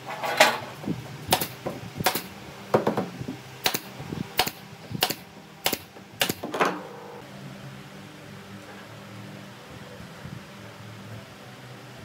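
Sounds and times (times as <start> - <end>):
nail gun firing into wood: 1.3 - 6.7.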